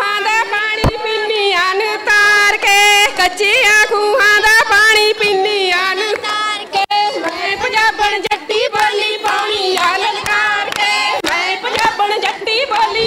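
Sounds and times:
women singing folk songs: 0:00.0 - 0:13.0
hand claps: 0:08.7 - 0:13.0.

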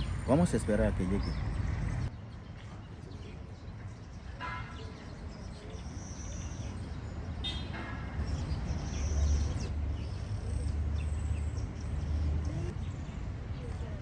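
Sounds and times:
bird chirps: 0:00.0 - 0:14.0.

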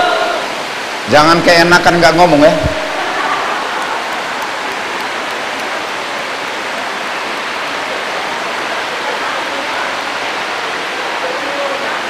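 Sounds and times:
heavy rain hissing: 0:00.0 - 0:12.0.

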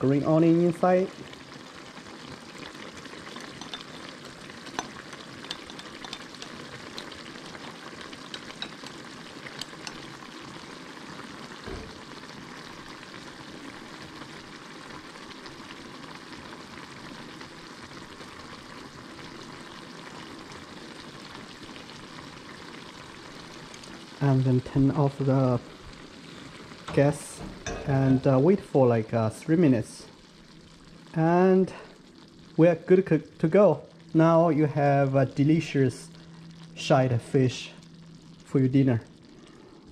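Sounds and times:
sauce sizzling in pan: 0:00.0 - 0:39.9
chopsticks clicking on pan: 0:04.8 - 0:07.1, 0:08.3 - 0:08.9, 0:09.6 - 0:10.1.

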